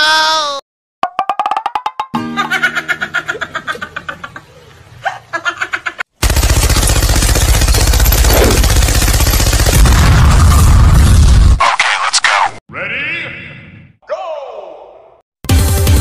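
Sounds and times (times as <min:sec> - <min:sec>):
cartoon laugh: 0:02.2 - 0:06.1
rapid machine-gun fire: 0:06.2 - 0:11.4.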